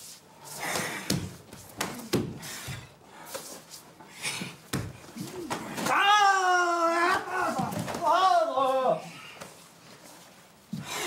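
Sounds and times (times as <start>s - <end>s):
bare feet slapping on wood: 0.6s - 3.6s
loud kiai shout: 5.2s - 9.2s.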